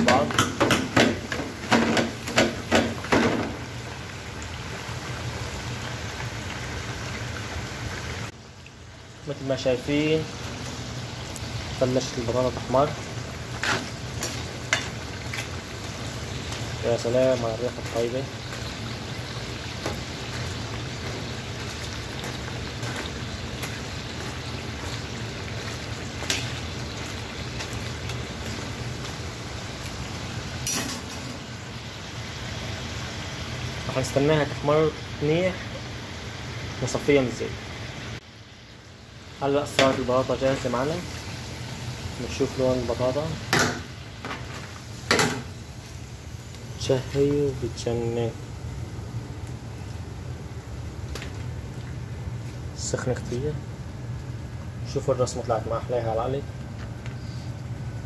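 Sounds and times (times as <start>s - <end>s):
potatoes sizzling in hot oil: 0.0s - 56.4s.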